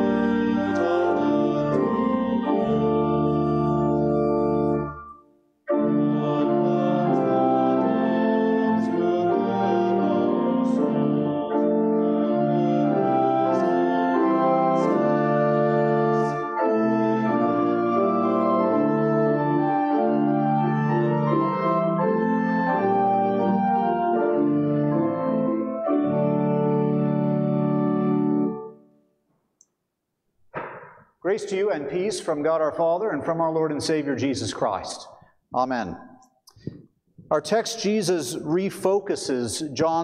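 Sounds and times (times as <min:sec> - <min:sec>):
church organ playing chords: 0:00.0 - 0:28.9.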